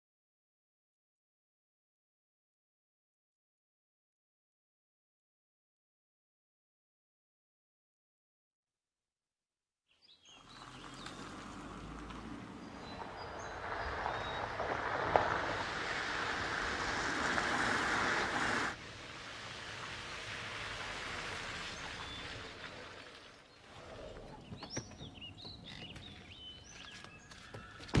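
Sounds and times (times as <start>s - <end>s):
birds chirping: 9.9s - 15.3s, 21.2s - 28.0s
car driving on dirt track: 10.3s - 27.2s.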